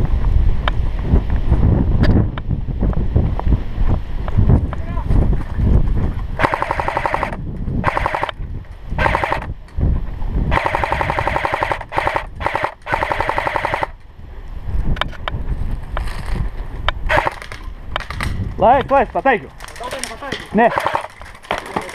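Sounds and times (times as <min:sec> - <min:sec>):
airsoft rifle automatic bursts: 0:06.4 - 0:08.3, 0:09.0 - 0:09.5, 0:10.5 - 0:14.0, 0:17.1 - 0:17.6, 0:20.6 - 0:21.2.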